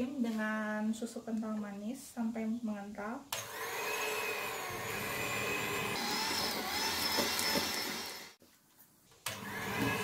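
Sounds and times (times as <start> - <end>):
electric hand mixer whining: 3.4 - 8.4, 9.3 - 10.0.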